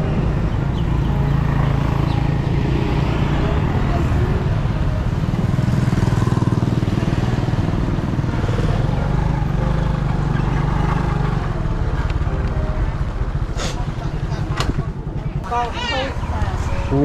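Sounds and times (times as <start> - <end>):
road and wind rush: 0.0 - 17.0
small motorcycle engine running: 0.5 - 12.0.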